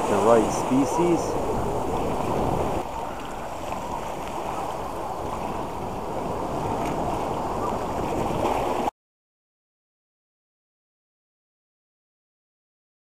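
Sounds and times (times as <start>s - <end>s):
small waves splashing on rocks: 0.0s - 8.9s.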